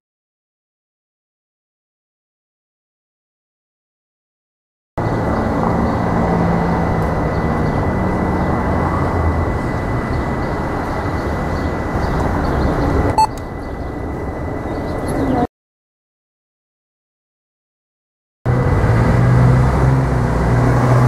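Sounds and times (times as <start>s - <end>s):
low rumble of passing traffic: 5.0s - 15.5s, 18.5s - 21.0s
steady high-pitched tone: 6.4s - 15.5s.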